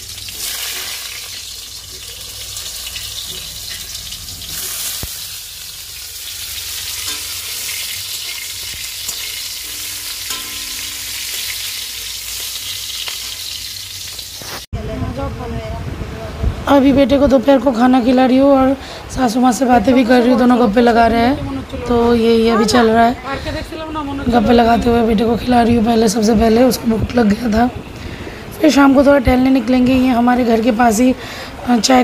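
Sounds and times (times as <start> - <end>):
vegetables sizzling in hot oil: 0.0 - 14.7.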